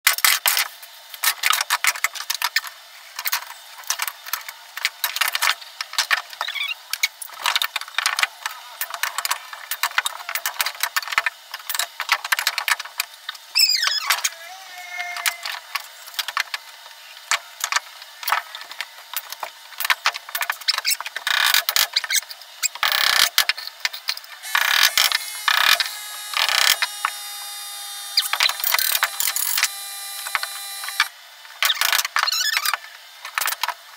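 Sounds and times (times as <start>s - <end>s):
brief falling squeal: 13.6s - 15.5s.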